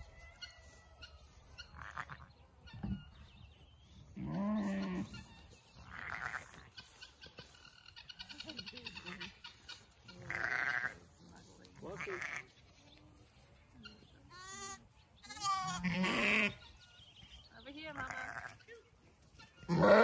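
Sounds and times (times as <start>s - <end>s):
lambs bleating: 1.7s - 2.3s, 5.9s - 6.6s, 10.2s - 11.0s, 12.0s - 12.6s, 14.3s - 16.6s, 18.0s - 18.7s, 19.6s - 20.0s
sheep baaing deeply: 19.7s - 20.0s.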